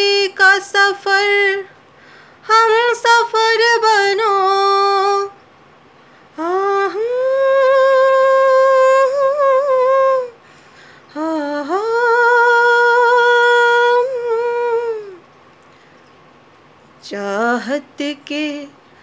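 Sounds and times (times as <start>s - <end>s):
woman humming: 6.4s - 10.4s, 11.1s - 15.2s.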